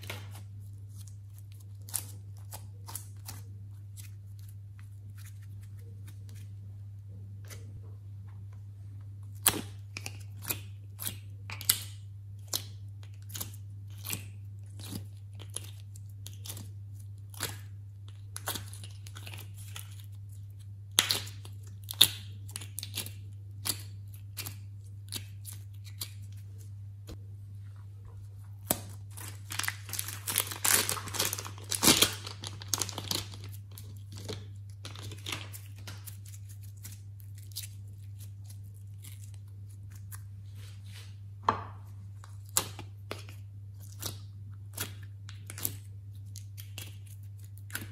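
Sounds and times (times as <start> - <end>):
plastic containers clicking and crackling: 28.8 - 36.0.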